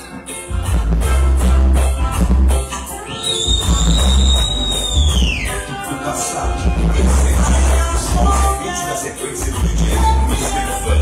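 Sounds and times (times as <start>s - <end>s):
reggae with heavy bass: 0.0s - 11.0s.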